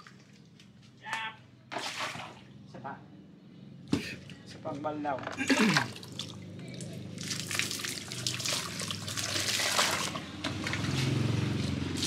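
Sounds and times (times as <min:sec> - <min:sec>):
water splashing in wooden mortar: 0:05.7 - 0:11.0.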